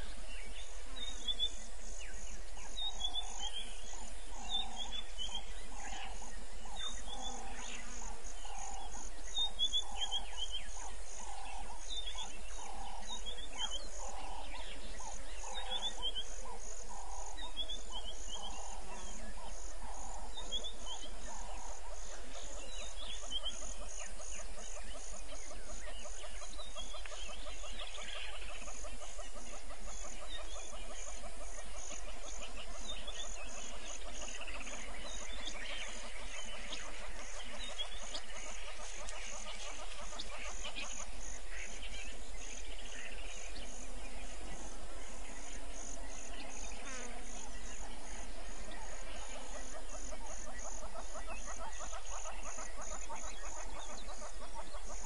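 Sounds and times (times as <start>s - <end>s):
high pulsing insect: 0.0s - 55.0s.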